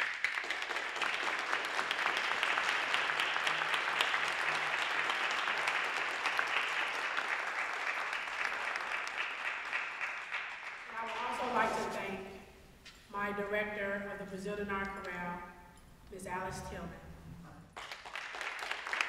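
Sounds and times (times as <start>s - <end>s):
audience applauding: 0.0s - 11.9s, 17.8s - 19.0s.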